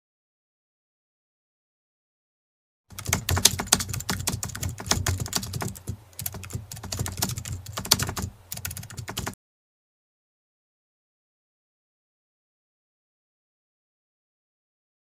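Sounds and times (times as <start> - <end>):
keyboard keys clicking: 2.9 - 9.4.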